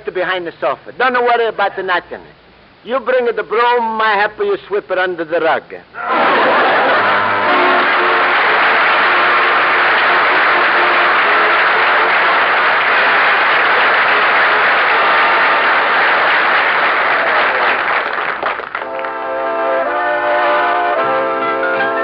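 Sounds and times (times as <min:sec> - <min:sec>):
audience applauding: 0:06.0 - 0:19.2.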